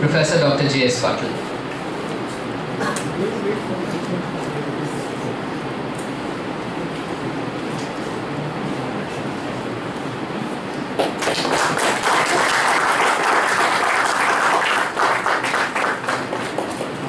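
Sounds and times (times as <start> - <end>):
audience applauding: 11.0 - 17.0.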